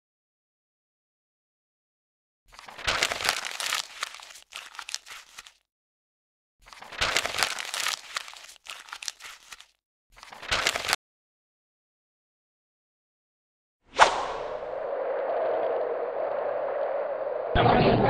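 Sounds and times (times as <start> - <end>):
paper crumpling: 2.5 - 5.7, 6.6 - 11.0.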